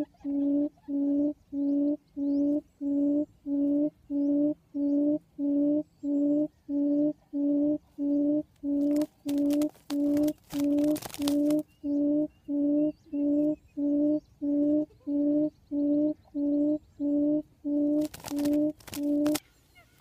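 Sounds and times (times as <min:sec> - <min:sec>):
bird low hoots: 0:00.0 - 0:20.0
noisy rustle: 0:08.8 - 0:11.6, 0:18.0 - 0:20.0.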